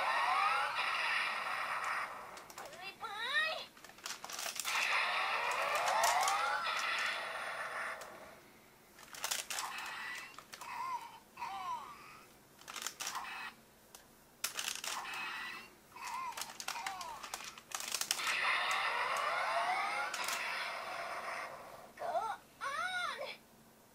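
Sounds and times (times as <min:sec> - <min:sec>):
rising tones: 0:00.0 - 0:02.5
plastic toy clicking and clattering: 0:01.8 - 0:02.8, 0:03.8 - 0:07.1, 0:09.0 - 0:10.7, 0:12.6 - 0:20.5.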